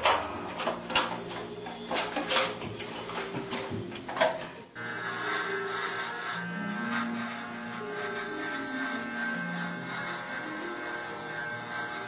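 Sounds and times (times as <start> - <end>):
electric hair trimmer buzzing: 3.5 - 12.0.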